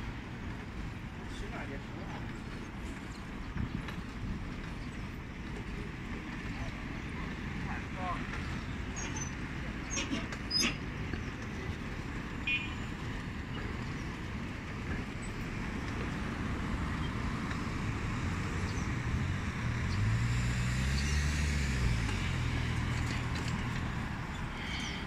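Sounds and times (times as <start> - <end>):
road traffic: 0.0 - 25.0
vehicle passing close: 16.2 - 25.0.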